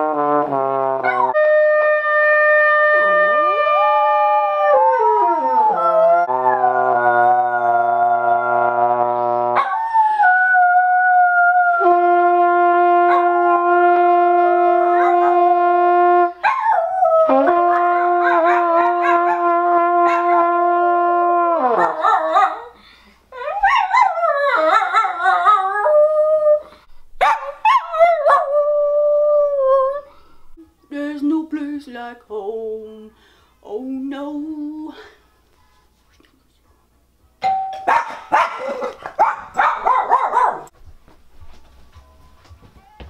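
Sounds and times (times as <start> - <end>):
brass horn long notes: 0.0 - 4.3, 6.2 - 9.7, 11.6 - 16.4, 17.0 - 22.4.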